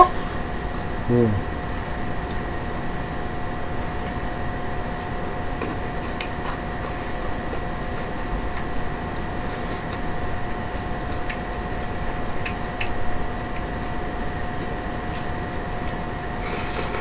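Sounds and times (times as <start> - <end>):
steady two-tone hum: 0.0 - 17.0
low voice: 1.1 - 1.4.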